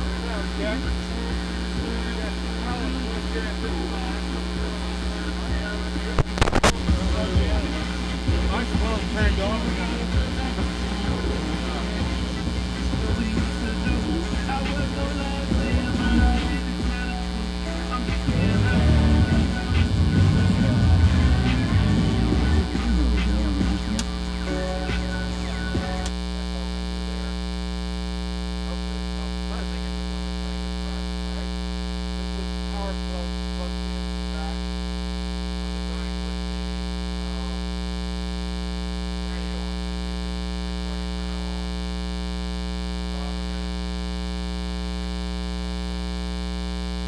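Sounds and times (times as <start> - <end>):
mains hum: 0.0 - 47.0
click: 6.2 - 6.8, 26.0 - 26.2.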